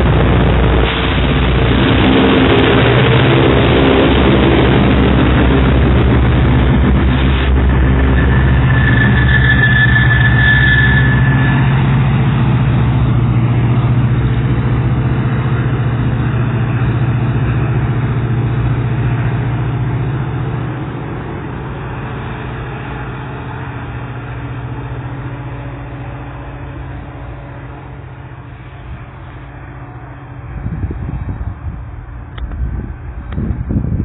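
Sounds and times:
diesel locomotive running: 0.0 - 34.0
high squeal from train: 6.6 - 32.3.

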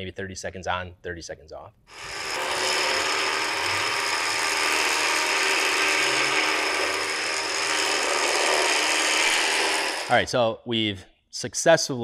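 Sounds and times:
electric winch motor whining: 1.9 - 10.3.

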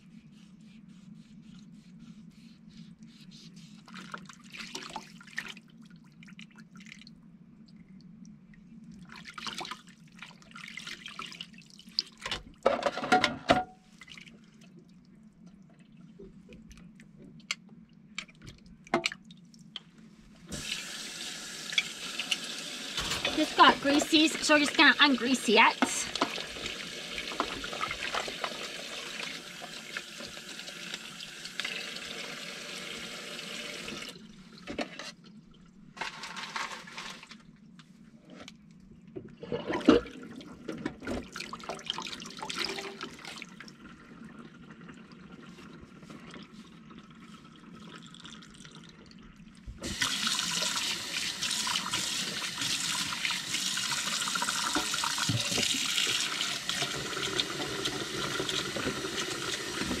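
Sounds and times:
dishes knocking and clinking: 12.7 - 13.8
faucet running into sink: 20.5 - 34.2, 49.8 - 60.0.

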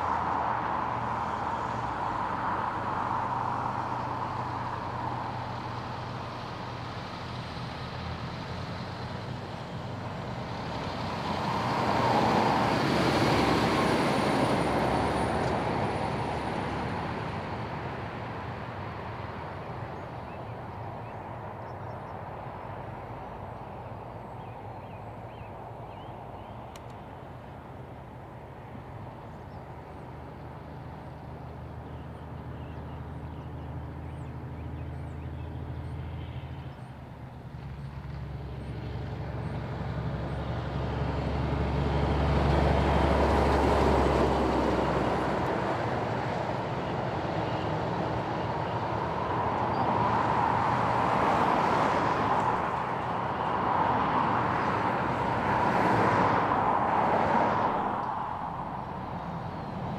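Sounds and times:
truck engine drone: 0.0 - 59.9
tyre and road noise: 0.0 - 59.9.

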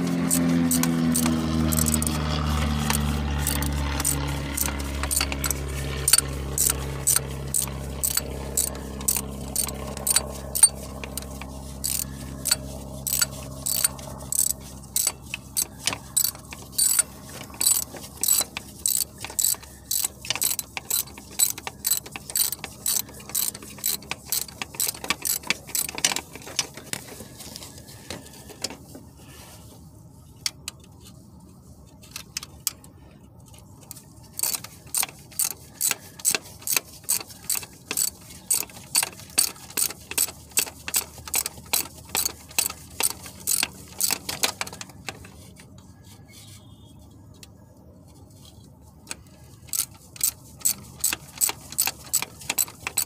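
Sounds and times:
ratchet wrench clicking: 0.3 - 2.2, 2.8 - 27.1, 33.9 - 45.2, 49.0 - 53.0.

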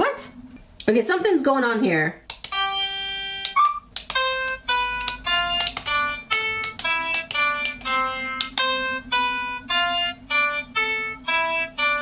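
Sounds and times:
quick electronic notes: 2.5 - 12.0.

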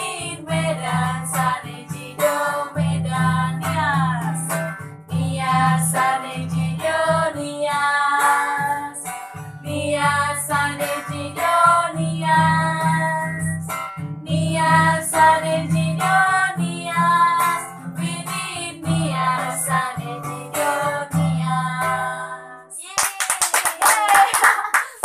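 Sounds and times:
acoustic guitar strumming: 0.0 - 22.6
women singing together: 0.0 - 22.8
hand claps: 22.8 - 25.0.

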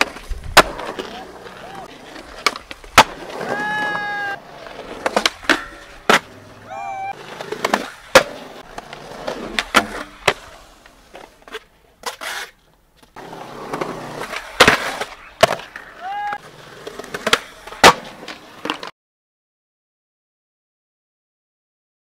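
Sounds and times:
skateboard clacking: 0.0 - 18.9
skateboard wheels rolling on concrete: 0.0 - 18.9
person calling out: 3.4 - 4.4, 6.6 - 7.2, 16.0 - 16.4.

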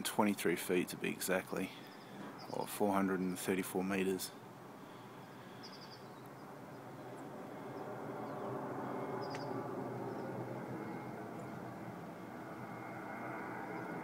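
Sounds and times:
distant jet engine rumble: 0.0 - 14.0
small bird chirping: 5.2 - 8.5, 9.2 - 10.4.

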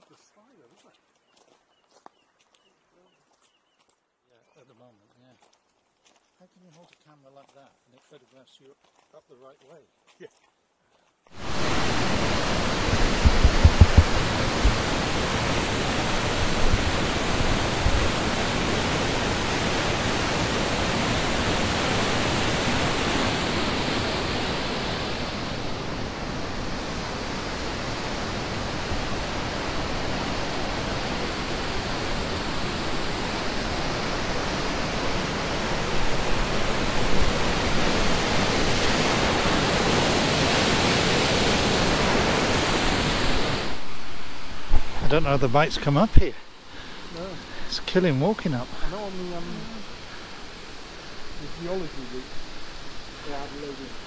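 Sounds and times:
waterfall rushing: 11.4 - 54.0
low thumps: 11.7 - 15.4.

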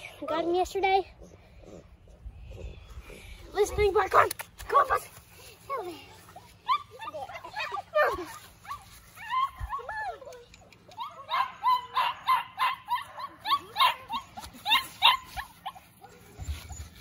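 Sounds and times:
puppy yipping and yelping: 6.4 - 17.0.

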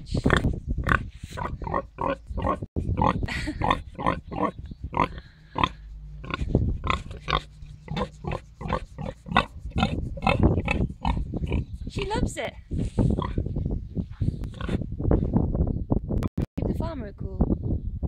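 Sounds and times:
pig grunting: 0.2 - 11.7.

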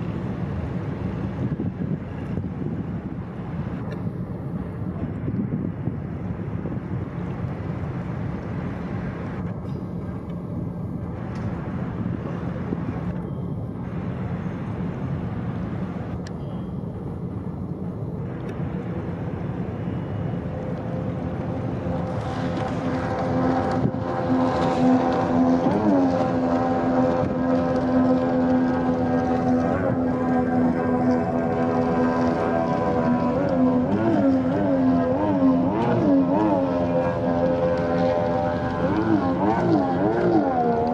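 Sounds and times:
boat engines rumbling: 0.0 - 40.9
pitched hum: 0.0 - 40.9.

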